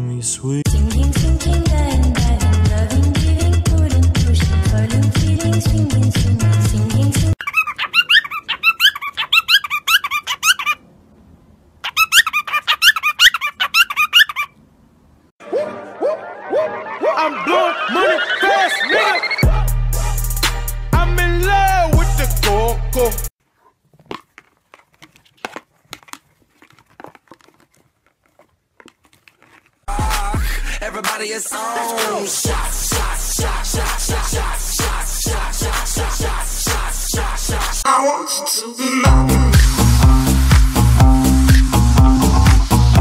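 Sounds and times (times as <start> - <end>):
cockatiel chirping rapidly: 7.4 - 10.8, 11.8 - 14.6
cardboard box clicks and crinkles: 23.8 - 29.9.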